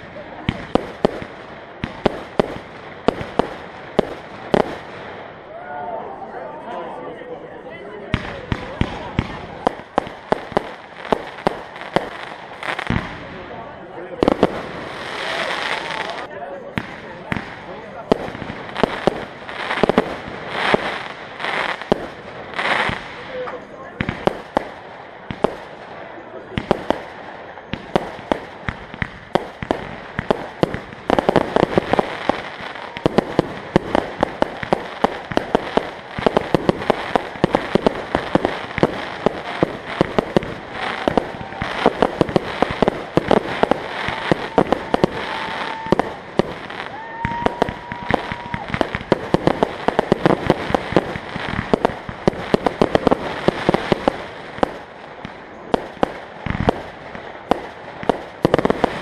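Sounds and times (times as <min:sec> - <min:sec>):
fireworks bursting: 0:00.0 - 0:06.2, 0:08.0 - 0:59.0
whistling fireworks: 0:00.0 - 0:06.2, 0:08.1 - 0:59.0.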